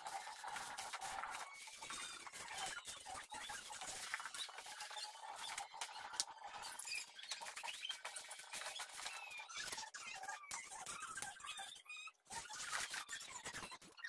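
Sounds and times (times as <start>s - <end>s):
hand kneading wet mash: 0.0s - 10.0s
small squeaks: 0.1s - 14.0s.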